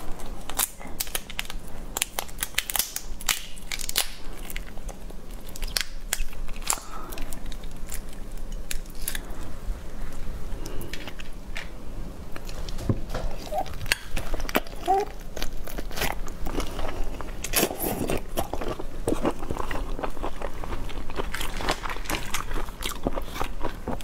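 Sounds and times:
shell crackling as peeled: 0.2 - 9.5.

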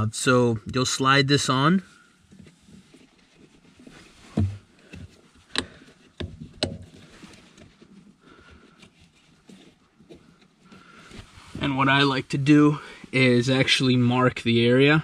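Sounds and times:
handling rustle: 2.2 - 13.5.

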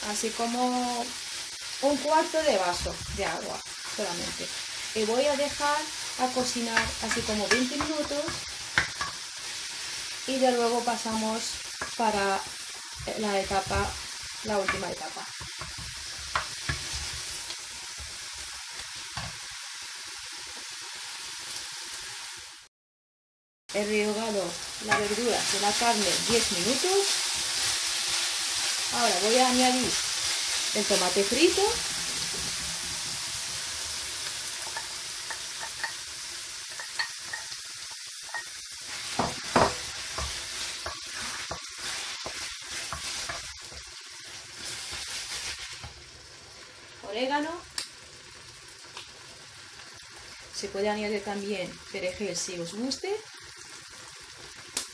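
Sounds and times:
meat sizzling in a frying pan: 0.0 - 22.7, 23.7 - 54.9.

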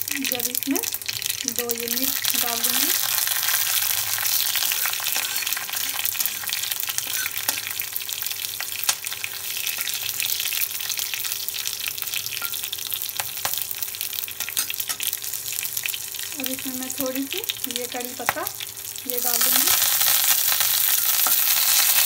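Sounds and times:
chillies sizzling in hot oil: 0.0 - 22.0.

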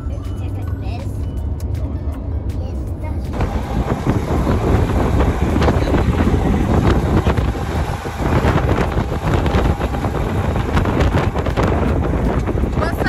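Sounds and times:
steady low rumble: 0.0 - 13.0
wind buffeting microphone: 3.3 - 13.0.

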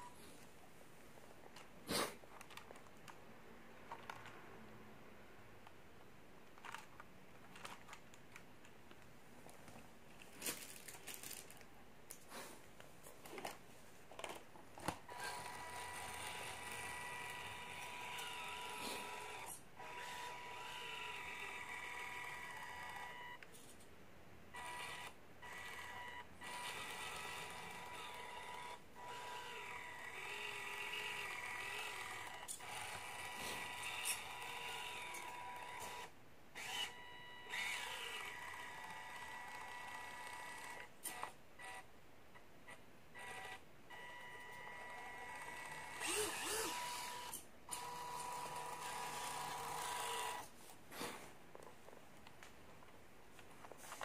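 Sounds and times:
small electric motor whining: 15.1 - 23.3, 24.6 - 41.8, 43.2 - 50.5.

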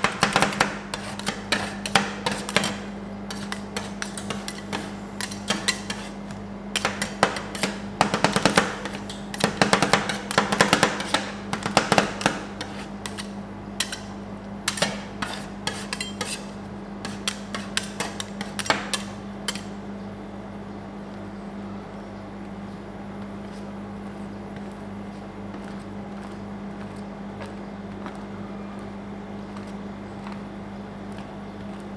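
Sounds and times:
steady low hum: 0.0 - 31.9
metal spatulas clacking and scraping: 13.1 - 14.0.

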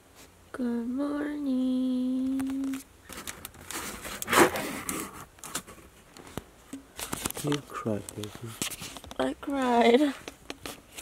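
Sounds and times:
crinkly material rustling: 2.5 - 11.0.

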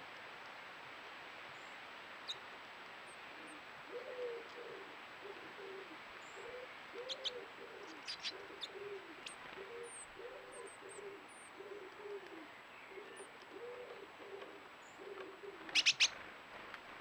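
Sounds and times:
pigeon cooing: 3.3 - 16.2
small birds chirping: 6.2 - 16.2.

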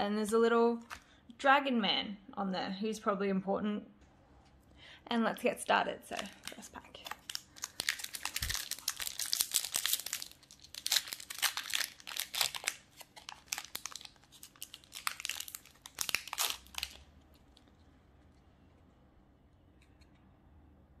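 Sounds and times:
foil wrapper tearing and crinkling: 6.1 - 17.7.

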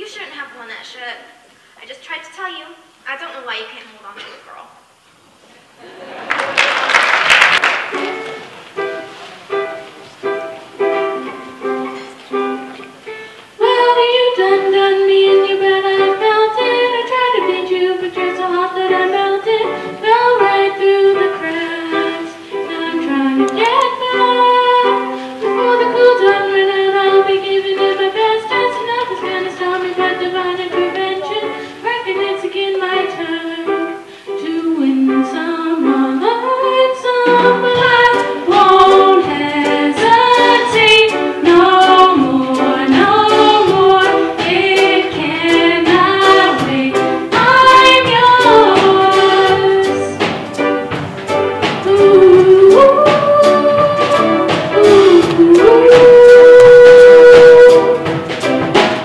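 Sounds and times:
band playing: 7.6 - 31.8, 35.3 - 59.0
women singing: 13.6 - 50.3, 51.8 - 58.1
ukulele plucked notes: 37.2 - 49.4.

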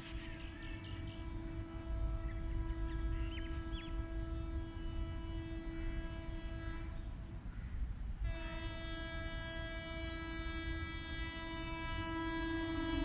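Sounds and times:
small birds chirping: 0.0 - 4.3, 6.2 - 7.9, 9.4 - 10.4
locomotive horn blast: 0.0 - 7.3, 8.2 - 13.0
low wind rumble: 0.0 - 13.0.

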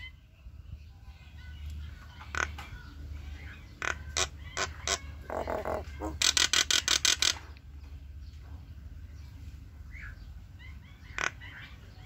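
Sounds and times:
bird harsh grating chatter: 2.0 - 7.6, 10.0 - 12.0
myna calling sharp notes: 3.6 - 7.4.

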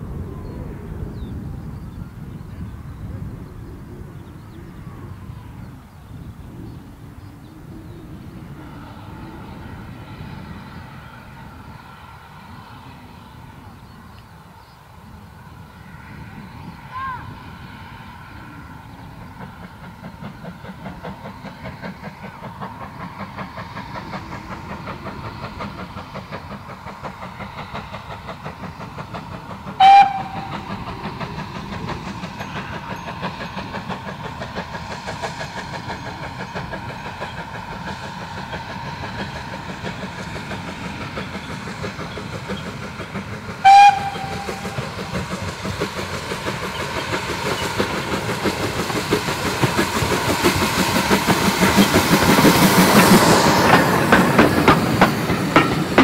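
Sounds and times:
steam locomotive exhaust beats: 0.0 - 56.0
steam whistle blasts: 29.8 - 30.8, 43.6 - 45.2.

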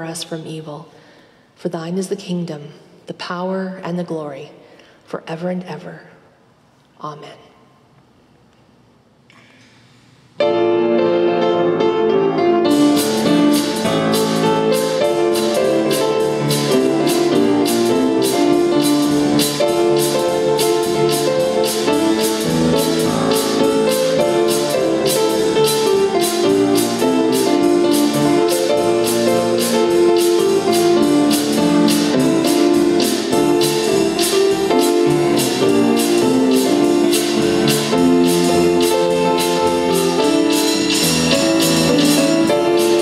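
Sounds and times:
instrumental hymn on piano: 10.4 - 43.0
steady percussion beat: 12.6 - 43.0.

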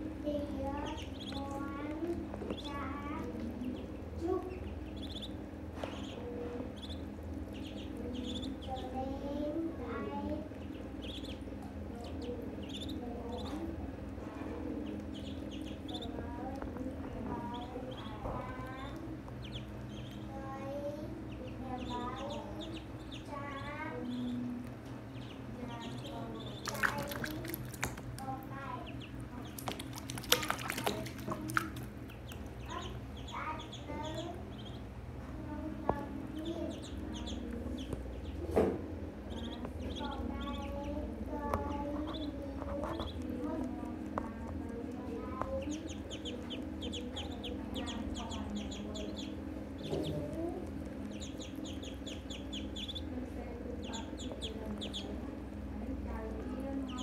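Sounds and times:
ducklings peeping: 0.0 - 57.0
steady low hum: 0.0 - 57.0
water splashing: 25.8 - 32.9.

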